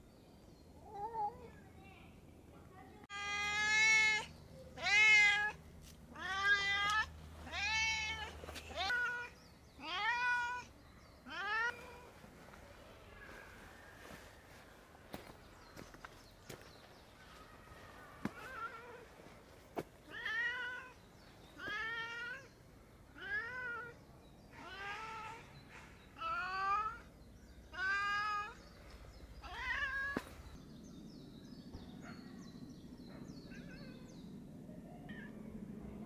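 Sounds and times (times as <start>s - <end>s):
cat meowing: 3.1s - 12.1s, 29.4s - 30.3s
low steady hum: 28.6s - 36.0s.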